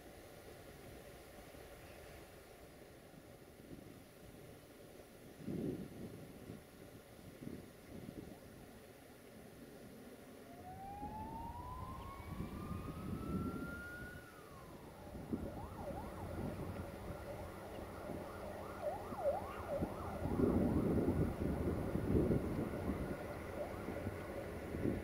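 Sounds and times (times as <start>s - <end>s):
siren wailing: 10.4s - 25.0s.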